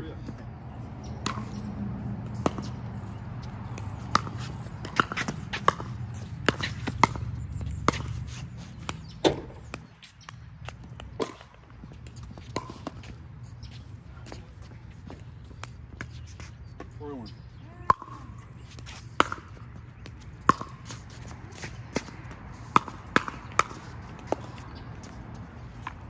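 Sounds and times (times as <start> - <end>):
ball bouncing on hard court: 1.0 - 1.7, 2.3 - 8.2, 8.8 - 13.1, 17.8 - 26.0
paddles hitting plastic ball: 17.9 - 24.6.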